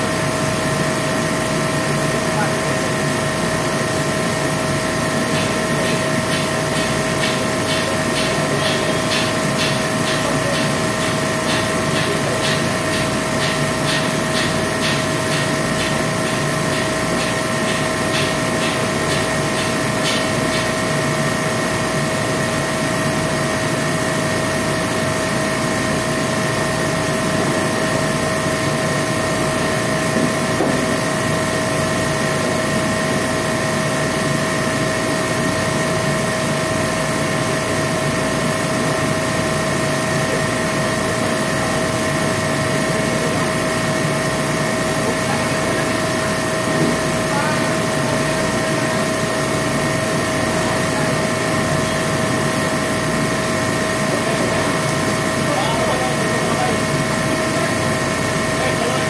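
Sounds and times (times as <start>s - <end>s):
rhythmic hand-tool strokes: 5.0s - 21.9s.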